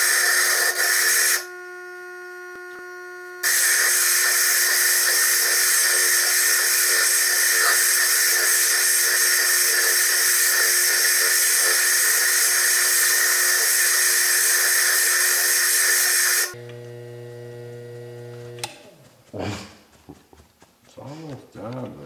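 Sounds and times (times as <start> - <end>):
high-pitched grinding hiss: 0.0 - 16.6
motor hum: 0.8 - 19.4.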